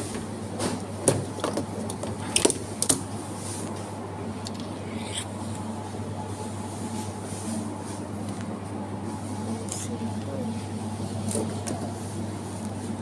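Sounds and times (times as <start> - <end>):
low supermarket hum: 0.0 - 13.0.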